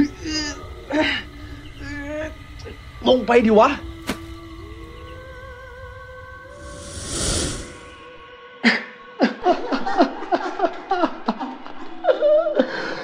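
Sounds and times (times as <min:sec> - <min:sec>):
low eerie music drone: 0:00.0 - 0:10.4
whooshing sound effect: 0:06.5 - 0:08.0.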